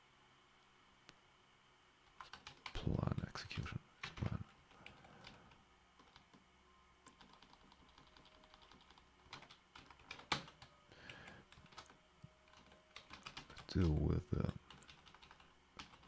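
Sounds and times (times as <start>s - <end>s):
computer keyboard typing: 2.2s - 2.8s, 4.0s - 6.4s, 7.0s - 16.0s.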